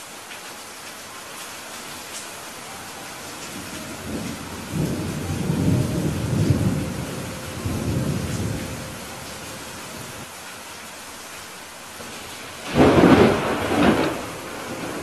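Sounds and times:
steady rain hiss: 0.0s - 15.0s
thunder rumbling: 3.4s - 10.3s, 12.0s - 15.0s.

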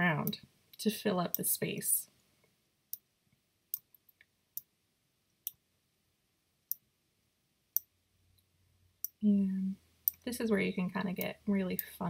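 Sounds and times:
computer mouse clicking: 11.2s - 12.0s.

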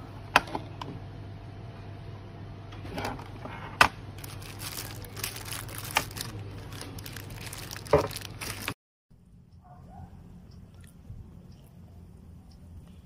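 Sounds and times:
steady low hum: 0.0s - 13.0s
crinkling rustle: 4.2s - 8.8s.

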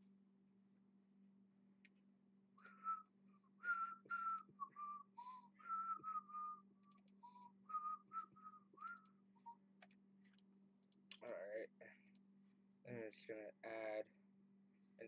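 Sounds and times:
faint electrical hum: 0.0s - 15.0s
person whistling a tune: 2.6s - 9.6s.

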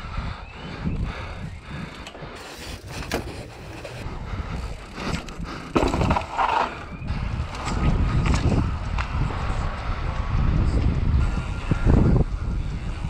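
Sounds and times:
bike thumping down concrete steps: 5.1s - 9.3s.

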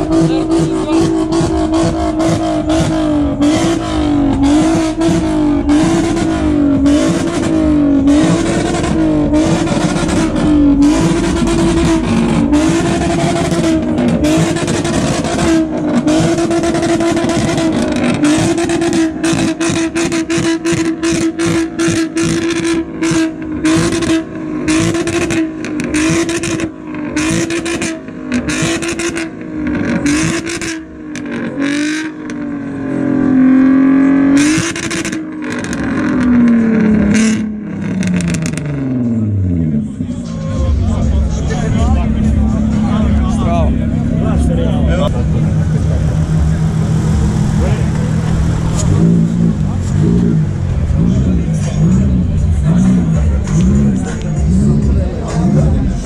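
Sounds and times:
exhaust pops and crackles: 0.0s - 32.4s, 34.4s - 39.1s
car engine revving: 0.0s - 56.0s.

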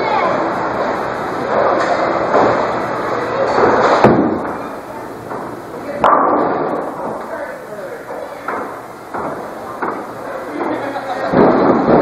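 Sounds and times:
bowling balls rolling: 0.3s - 12.0s
voices: 2.8s - 12.0s
bowling pins crashing: 3.4s - 4.7s, 5.3s - 7.4s, 8.2s - 12.0s
sharp knocks: 5.3s - 7.3s, 8.5s - 10.1s.

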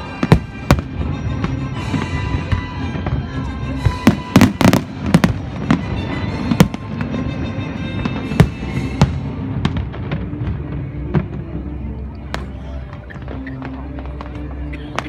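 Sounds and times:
fireworks bursting: 0.0s - 11.5s
music: 0.0s - 15.0s.

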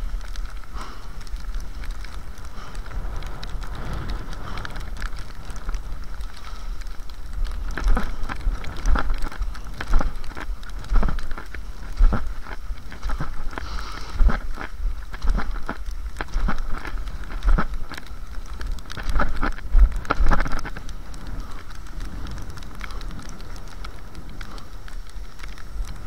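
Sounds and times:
wind rumbling on microphone: 0.0s - 26.0s
skis hissing on packed snow: 13.6s - 14.2s.

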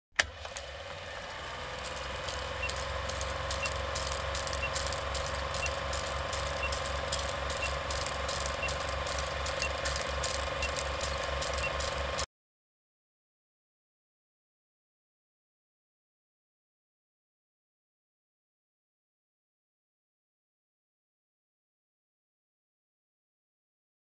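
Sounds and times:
film projector clatter: 0.2s - 12.3s
old film crackle: 0.2s - 12.3s
short high beeps: 2.3s - 12.2s.

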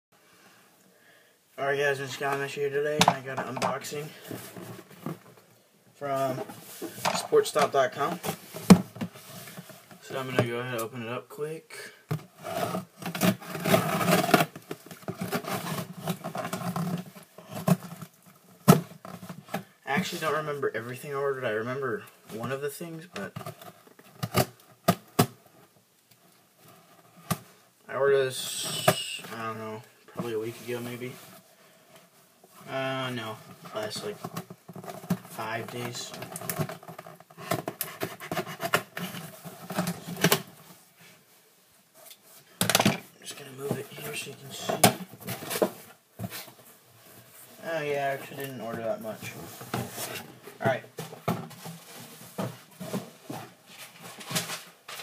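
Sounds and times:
cardboard box being unpacked: 12.4s - 19.2s.

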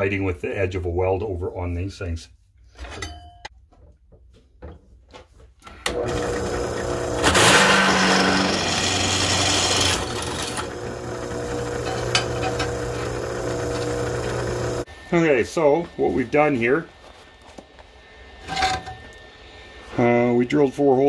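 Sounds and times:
drill press motor humming: 5.8s - 15.2s
drill bit cutting steel: 5.9s - 15.2s.

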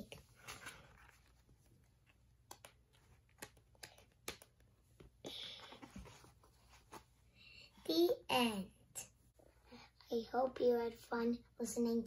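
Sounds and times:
paper page rustle: 0.1s - 3.8s
faint clicks and taps: 2.0s - 6.2s.

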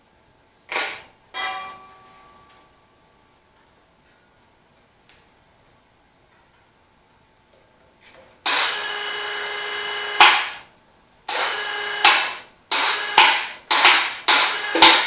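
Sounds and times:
electric hoist motor running: 8.5s - 10.7s, 11.3s - 15.0s.

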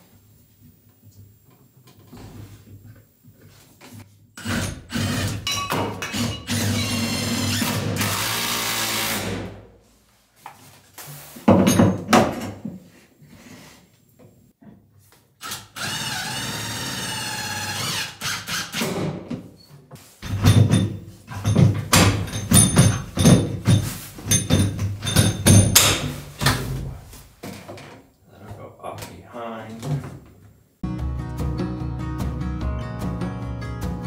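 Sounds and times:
cordless drill driving screws: 4.4s - 5.4s, 6.1s - 9.4s, 15.4s - 18.9s
clattering thumps: 20.2s - 26.7s.

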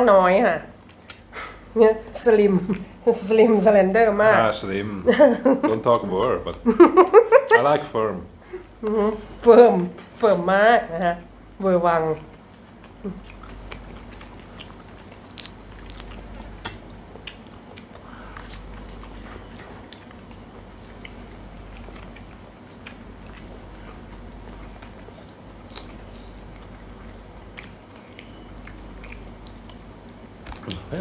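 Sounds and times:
steady low hum: 0.0s - 31.0s
chewing and biting: 12.0s - 31.0s.

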